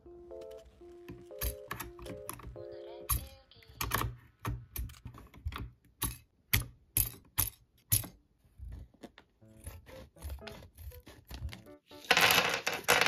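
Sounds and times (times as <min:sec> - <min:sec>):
mechanical keyboard clacks: 0:01.1 - 0:08.2.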